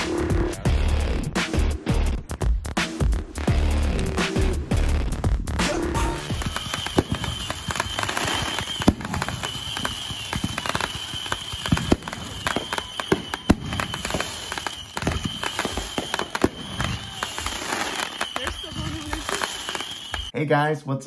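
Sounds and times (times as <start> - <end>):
fireworks popping and crackling: 6.1 - 20.3
loud firework bangs: 6.2 - 20.3.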